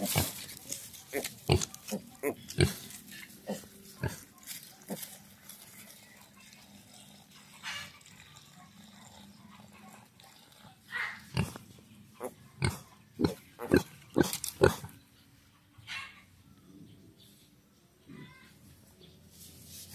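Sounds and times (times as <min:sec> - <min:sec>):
pigs grunting: 0:01.1 - 0:05.2, 0:08.8 - 0:11.6, 0:12.2 - 0:15.0.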